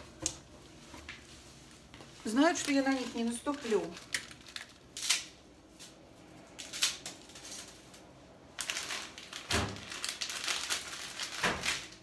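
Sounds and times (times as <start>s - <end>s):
plastic packet crinkling: 2.2s - 5.4s, 6.6s - 12.0s.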